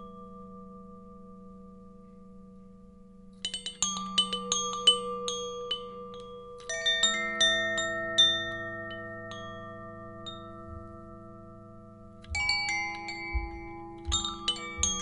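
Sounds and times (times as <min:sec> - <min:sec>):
metal chime notes ringing: 0:03.5 - 0:15.0.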